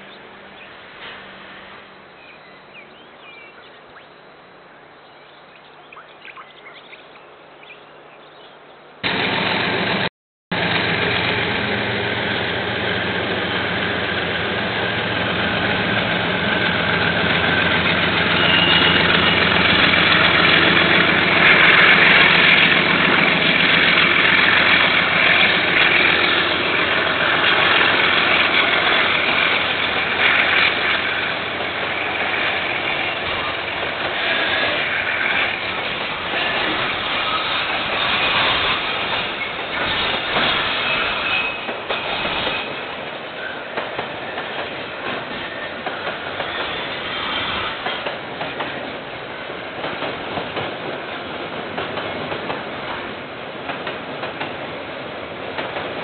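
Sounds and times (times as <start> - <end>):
birds chirping: 2.0 - 9.0
diesel locomotive engine running: 9.0 - 56.0.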